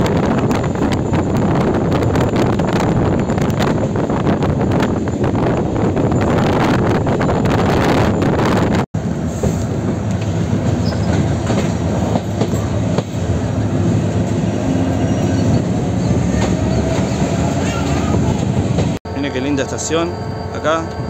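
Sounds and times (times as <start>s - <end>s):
wind through train window: 0.0s - 19.0s
train wheel clatter: 9.4s - 13.3s
faint train squeal: 10.8s - 11.3s, 14.9s - 18.2s, 19.1s - 21.0s.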